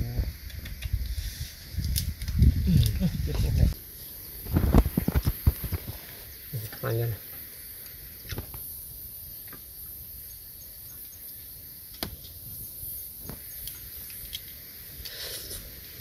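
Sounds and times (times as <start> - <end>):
steady low rumble: 0.0 - 3.9
high hiss: 0.0 - 16.0.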